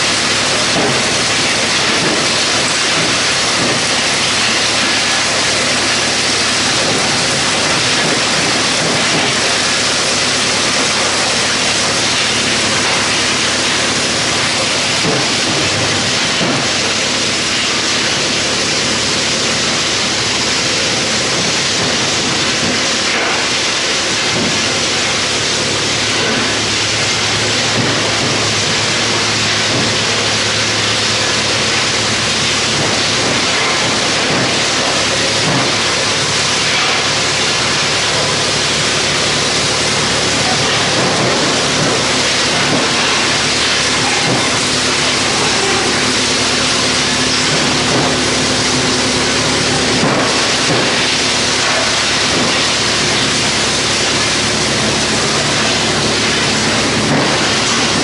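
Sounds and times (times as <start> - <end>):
wood chipper rushing noise: 0.0 - 58.0.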